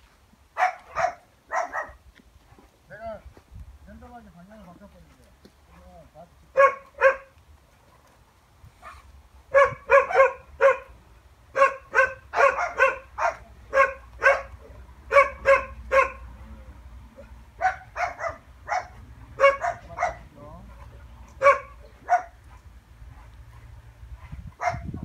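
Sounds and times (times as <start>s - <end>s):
dog barking: 0.6s - 2.0s, 6.5s - 7.3s, 8.8s - 10.9s, 11.5s - 16.3s, 17.2s - 23.3s, 24.2s - 25.0s.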